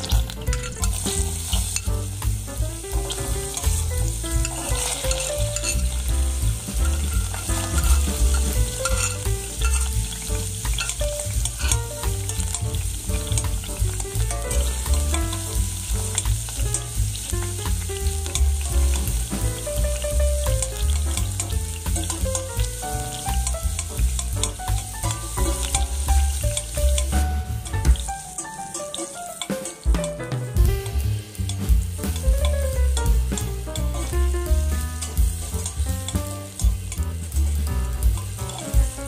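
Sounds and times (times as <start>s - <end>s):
food sizzling in hot oil: 0.0s - 39.0s
metal ladle stirring in pot: 4.4s - 6.1s, 6.8s - 12.6s, 21.9s - 22.3s.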